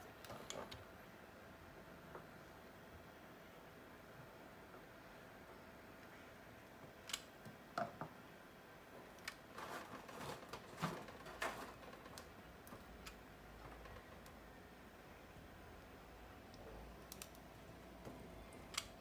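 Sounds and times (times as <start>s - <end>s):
plastic parts clicking and scraping: 9.2s - 14.4s.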